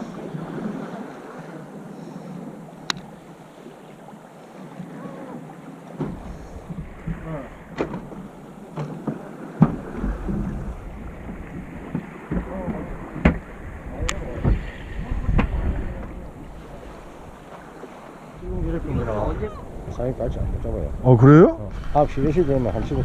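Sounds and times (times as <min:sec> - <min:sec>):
choppy water against boat hull: 0:00.0 - 0:23.0
wind buffeting microphone: 0:06.0 - 0:23.0
sharp knocks: 0:11.9 - 0:13.5.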